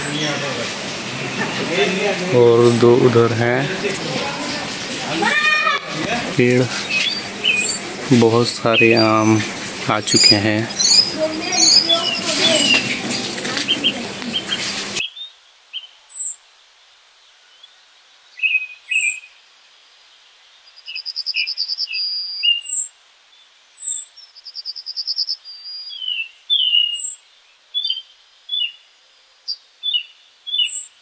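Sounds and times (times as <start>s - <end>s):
loud rushing noise: 0.0s - 15.0s
birds chirping and singing: 0.0s - 16.3s, 23.8s - 27.2s, 27.8s - 28.9s, 29.8s - 30.9s.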